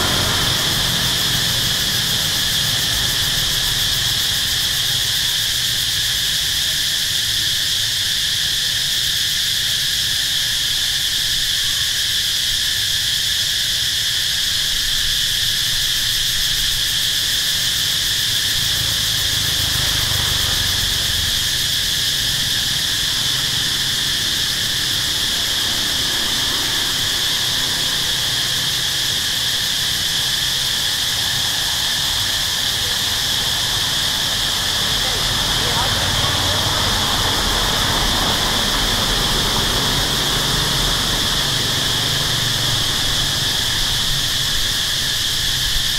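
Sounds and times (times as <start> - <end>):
insects buzzing: 0.0 - 45.9.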